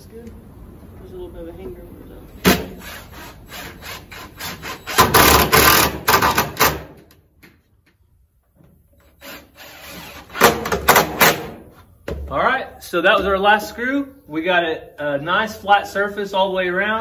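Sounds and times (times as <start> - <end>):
cordless drill driving screws: 2.7 - 6.8, 9.0 - 10.7.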